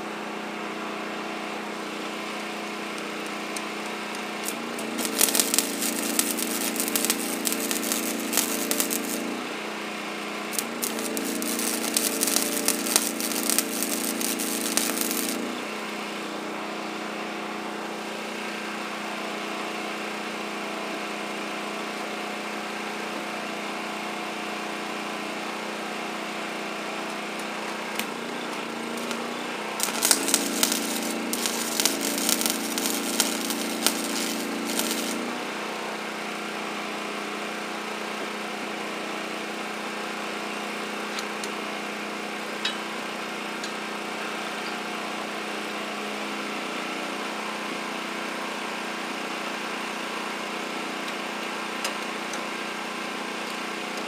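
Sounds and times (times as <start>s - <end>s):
machine hum: 1.6s - 16.3s, 28.1s - 35.6s
welding arc crackling: 2.1s - 16.0s, 27.8s - 35.6s.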